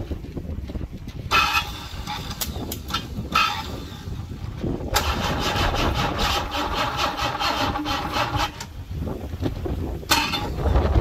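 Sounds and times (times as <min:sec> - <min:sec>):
car engine cranking: 0:01.3 - 0:08.9, 0:10.1 - 0:11.0.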